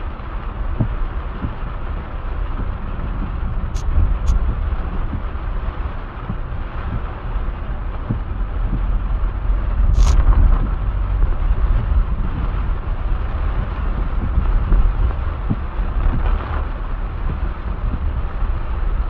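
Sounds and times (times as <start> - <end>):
heavy rain on a car roof: 0.0 - 19.0
brief sharp hiss: 10.0 - 10.2.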